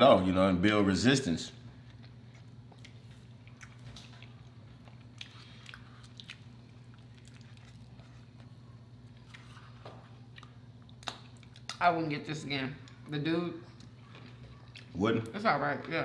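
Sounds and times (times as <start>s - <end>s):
low steady hum: 0.0s - 16.0s
chewing sandwich: 1.6s - 11.8s, 12.8s - 15.3s.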